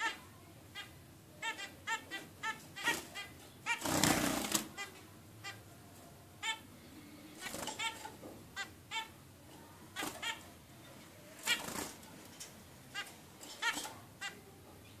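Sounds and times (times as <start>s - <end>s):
finches calling: 0.0s - 5.7s, 7.4s - 9.2s
wings fluttering and rustling: 2.8s - 4.8s, 7.4s - 8.2s, 11.2s - 14.0s.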